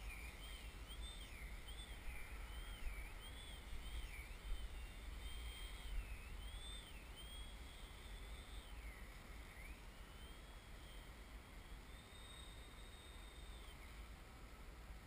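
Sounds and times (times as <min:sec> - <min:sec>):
wind rumble on microphone: 0:00.0 - 0:10.2
model airplane motor whine: 0:00.0 - 0:15.0.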